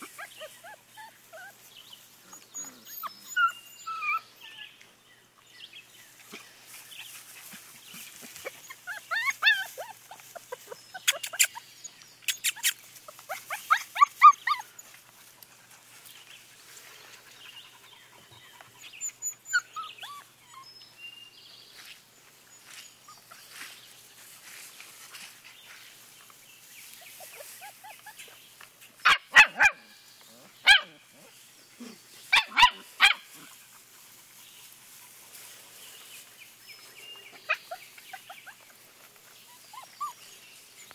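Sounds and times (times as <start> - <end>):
puppies yapping: 0.0 - 4.7, 6.2 - 20.8, 27.0 - 40.9
puppies whining and yipping: 0.0 - 4.8, 6.2 - 16.7, 17.4 - 21.1, 22.5 - 23.7, 26.8 - 28.5, 30.7 - 40.9.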